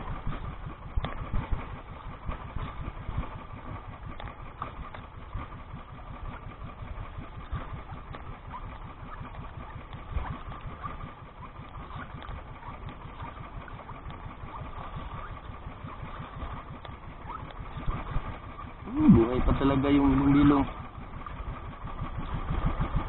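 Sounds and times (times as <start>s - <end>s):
small boat engine running: 0.0s - 23.0s.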